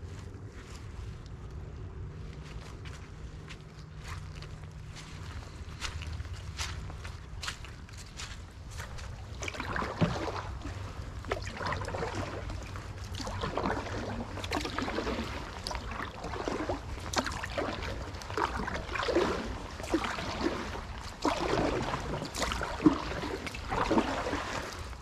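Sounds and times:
steady low rumble: 0.0s - 25.0s
water drips: 3.5s - 25.0s
paddle splashing in water: 8.7s - 25.0s.

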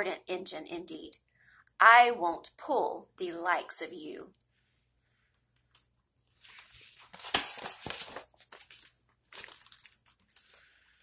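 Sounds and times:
paper page turning: 6.3s - 10.9s.

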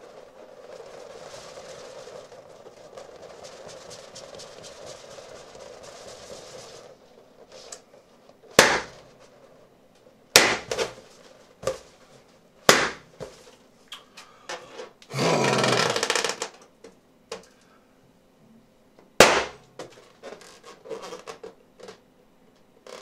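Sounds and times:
balloons popping: 0.0s - 9.3s, 10.3s - 12.0s, 12.6s - 13.6s, 15.1s - 16.7s, 19.2s - 22.0s.

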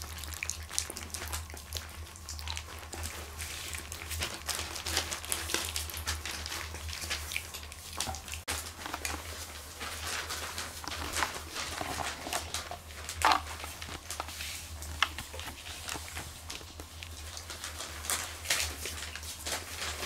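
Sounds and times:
paper rustling: 8.5s - 20.0s.

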